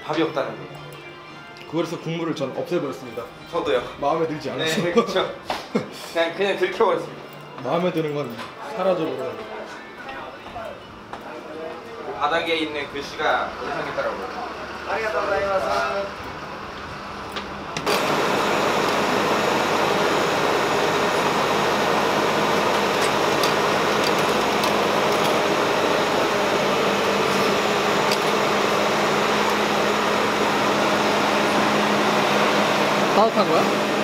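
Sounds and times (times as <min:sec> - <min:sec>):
fan running with low hum: 0:10.6 - 0:34.0.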